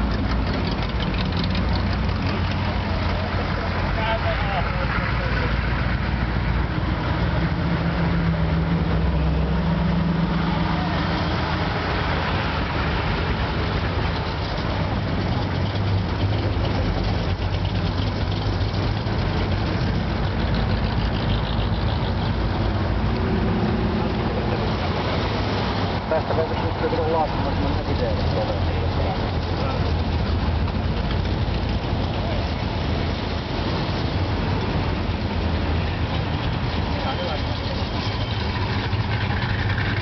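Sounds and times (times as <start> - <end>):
car engines rumbling: 0.0 - 40.0.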